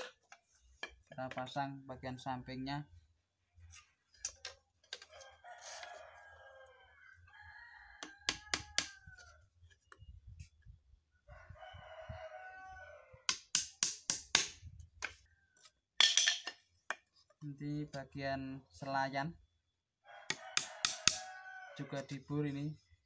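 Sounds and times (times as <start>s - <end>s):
rooster crowing: 5.1s - 9.4s, 11.3s - 13.3s, 20.0s - 22.0s.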